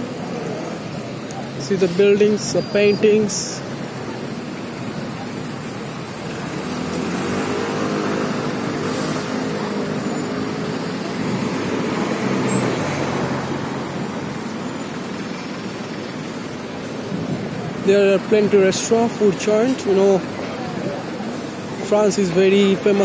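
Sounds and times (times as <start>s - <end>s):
minibus engine driving by: 0.0s - 22.0s
van passing: 0.0s - 23.0s.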